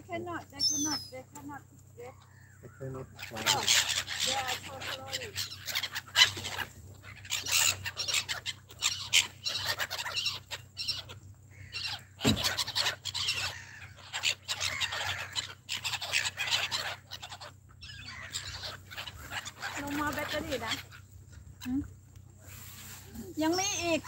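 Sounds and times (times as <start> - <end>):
gulls squawking: 2.0 - 21.8, 22.8 - 24.0.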